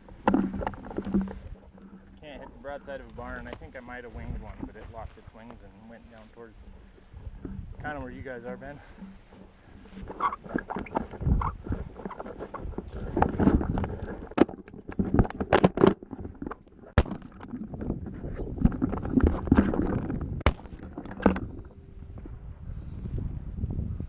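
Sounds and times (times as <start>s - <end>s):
footsteps crunching on grass and rock: 2.4s - 14.2s.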